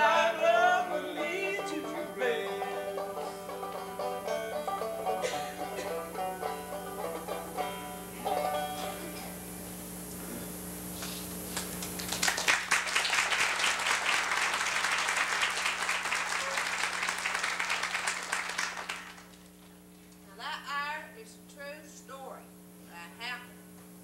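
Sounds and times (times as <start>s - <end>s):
audience applauding: 11.5s - 19.5s.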